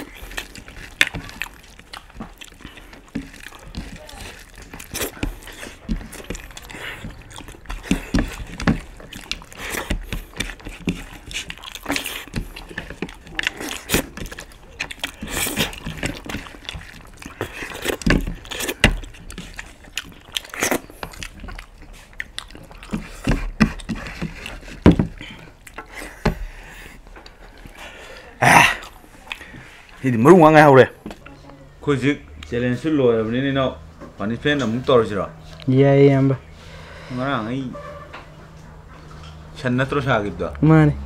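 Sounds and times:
chewing and mouth smacks: 0.0s - 30.1s, 38.5s - 39.6s
fingers squishing food on plates: 0.0s - 32.6s, 37.7s - 39.6s.

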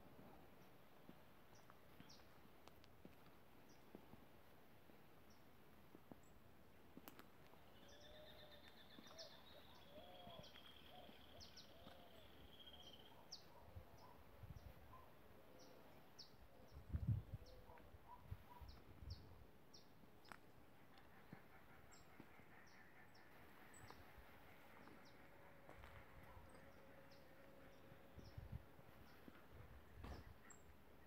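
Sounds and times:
birds chirping and warbling: 7.5s - 20.0s, 20.7s - 31.0s.

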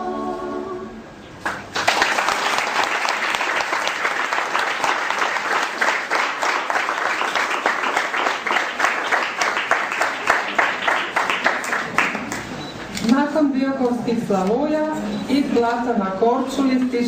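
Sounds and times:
a cappella vocal chord: 0.0s - 1.1s
audience applauding: 1.4s - 12.6s.

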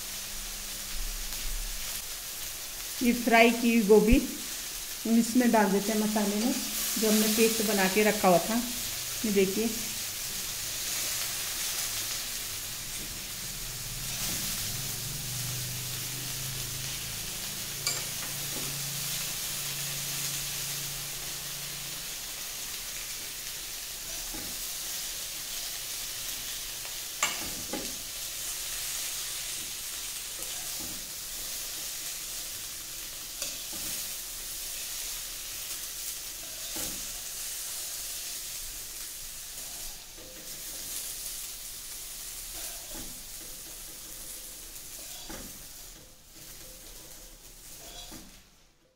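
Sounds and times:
vegetables sizzling in oil: 0.0s - 48.7s
spoon tapping pan: 17.8s - 18.8s, 27.2s - 27.9s.

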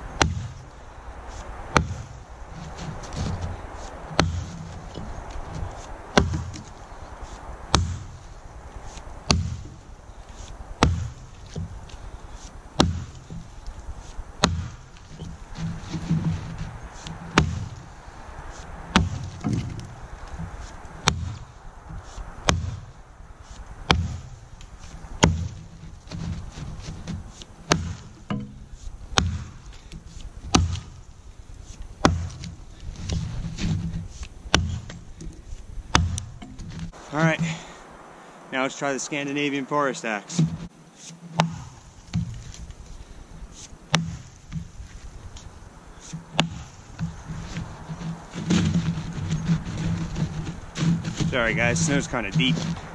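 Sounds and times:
axe chopping into log: 0.2s - 0.6s, 1.7s - 6.7s, 7.3s - 8.2s, 8.9s - 9.8s, 10.4s - 13.4s, 14.4s - 17.8s, 18.5s - 22.9s, 23.8s - 24.4s, 25.2s - 31.0s, 31.7s - 35.0s, 35.9s - 37.7s, 40.3s - 42.7s, 43.6s - 45.1s, 46.0s - 52.9s.

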